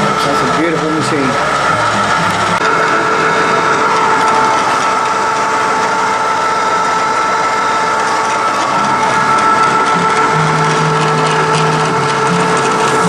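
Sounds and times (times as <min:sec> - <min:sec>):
milling machine running: 0:00.0 - 0:13.0
motor and spindle whine: 0:00.0 - 0:13.0.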